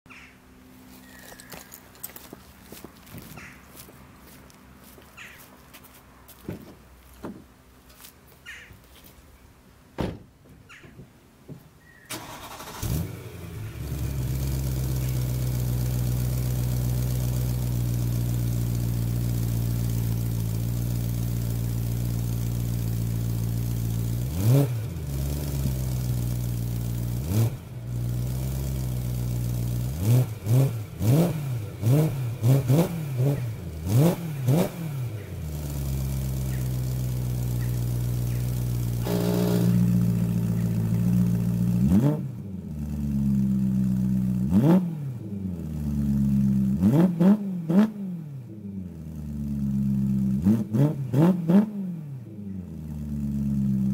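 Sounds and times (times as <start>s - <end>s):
car engine starting and idling: 12.1s - 51.6s
car engine revving: 12.1s - 52.2s.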